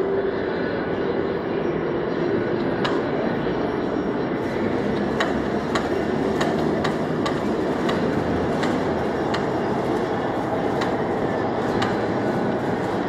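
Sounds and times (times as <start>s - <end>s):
heavy machinery din: 4.3s - 13.0s
sharp metallic clicks: 4.8s - 13.0s.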